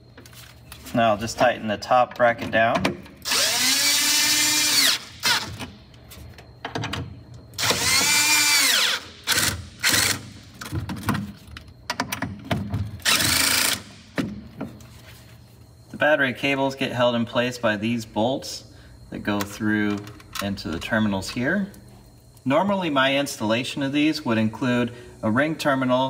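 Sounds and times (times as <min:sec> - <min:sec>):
cordless drill motor whine: 0:03.2 - 0:05.6, 0:07.6 - 0:10.4, 0:13.0 - 0:14.0.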